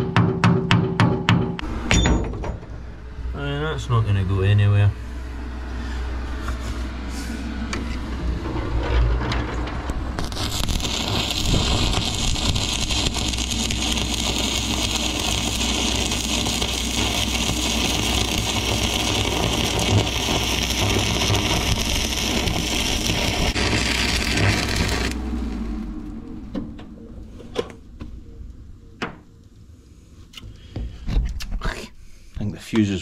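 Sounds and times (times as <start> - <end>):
low steady hum: 1.6 - 33.0
welding arc crackling: 9.9 - 26.1.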